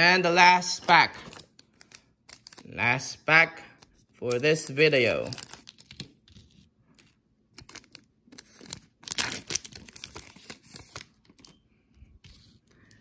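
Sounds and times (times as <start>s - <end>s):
wrapper tearing and crinkling: 1.2s - 2.7s, 4.2s - 6.4s, 7.6s - 11.5s.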